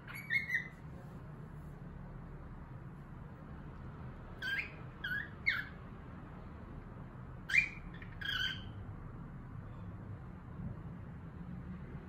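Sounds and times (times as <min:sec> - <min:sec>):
cockatiel chirping: 0:00.0 - 0:00.8, 0:04.4 - 0:05.8, 0:07.4 - 0:08.8.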